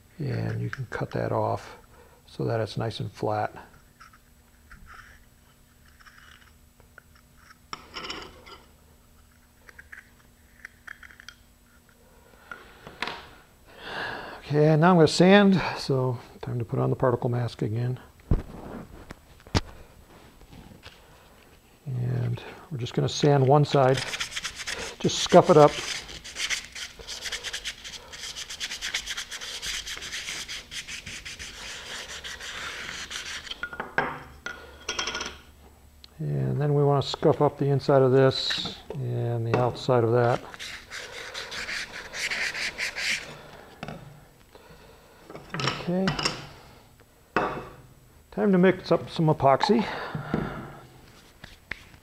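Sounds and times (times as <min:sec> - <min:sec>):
sandpaper rubbing fiberglass: 0:23.8 - 0:33.6, 0:40.3 - 0:43.3
hobby knife scraping: 0:40.5 - 0:43.3.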